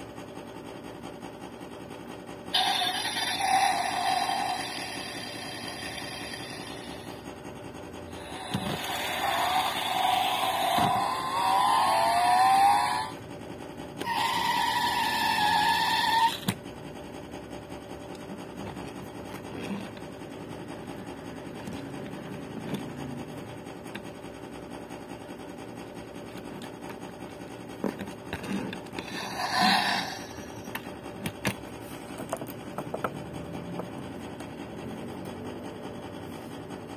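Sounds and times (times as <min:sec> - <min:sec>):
toy car buzzy sound effect: 0:02.5 - 0:07.2, 0:08.1 - 0:13.2, 0:14.0 - 0:16.6, 0:18.6 - 0:20.1, 0:27.9 - 0:31.4
toy handling rubbing and clicks: 0:08.2 - 0:13.1, 0:14.0 - 0:16.6, 0:18.2 - 0:20.1, 0:21.6 - 0:24.1, 0:26.3 - 0:33.2.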